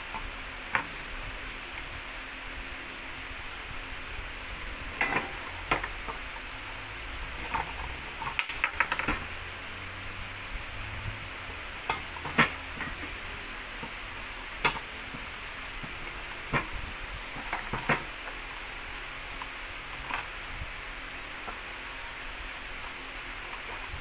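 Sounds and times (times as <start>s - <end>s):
plastic parts clicking and knocking: 4.9s - 6.5s, 7.4s - 9.4s, 11.8s - 18.4s.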